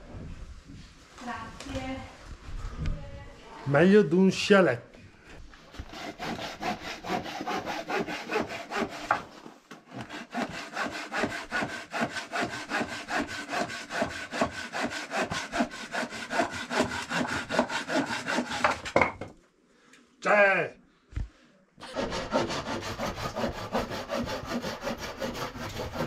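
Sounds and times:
saw cutting wood: 0:05.7 - 0:19.0, 0:21.8 - 0:26.0.

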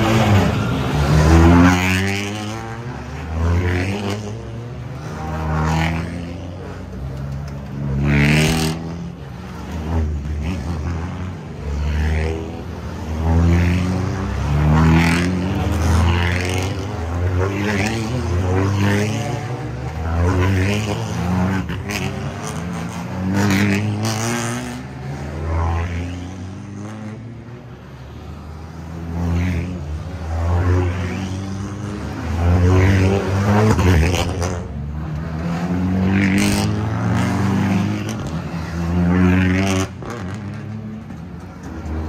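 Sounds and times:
race car engines passing: 0:00.0 - 0:42.0.

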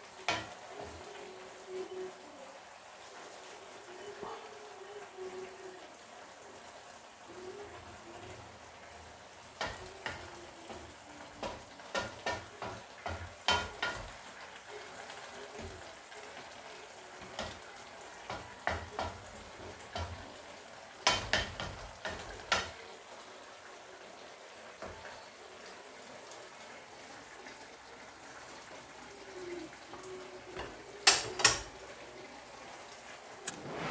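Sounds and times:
simmering broth hiss: 0:00.0 - 0:33.9
utensil scraping and knocking wok: 0:09.5 - 0:14.2, 0:17.2 - 0:20.3, 0:21.0 - 0:22.8.

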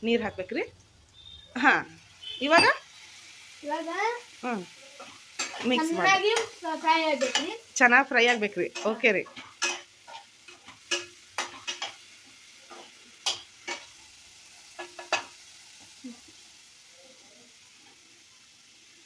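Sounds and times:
faint sizzle: 0:00.0 - 0:19.0
spatula scraping a pan: 0:04.9 - 0:06.6, 0:08.2 - 0:14.1.

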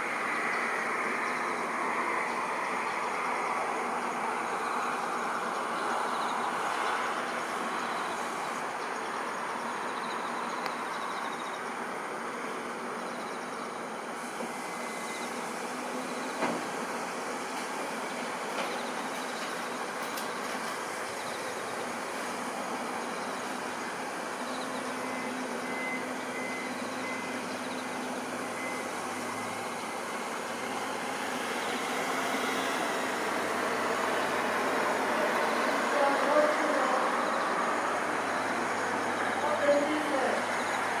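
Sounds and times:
city background noise: 0:00.0 - 0:41.0.

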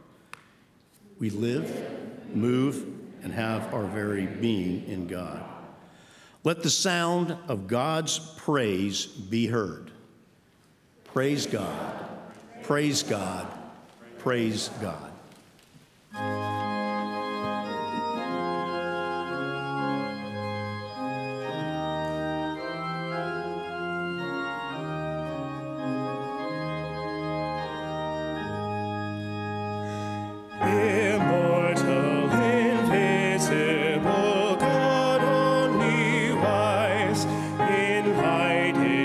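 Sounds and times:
church organ playing: 0:01.3 - 0:08.2, 0:12.7 - 0:15.1, 0:16.1 - 0:39.0
voices singing with vibrato: 0:01.4 - 0:06.0, 0:30.6 - 0:39.0.

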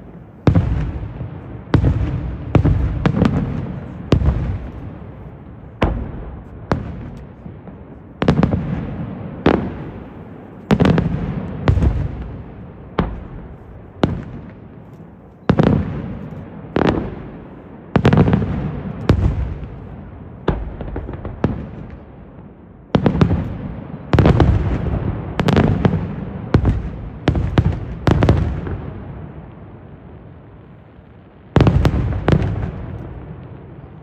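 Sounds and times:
firework shells bursting with echo: 0:00.0 - 0:22.2.

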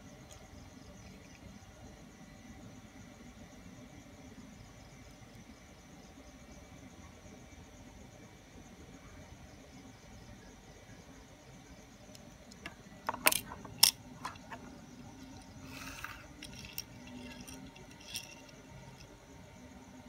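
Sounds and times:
toy car clicking on hard surface: 0:12.5 - 0:19.1
toy car scraping: 0:13.1 - 0:19.1.

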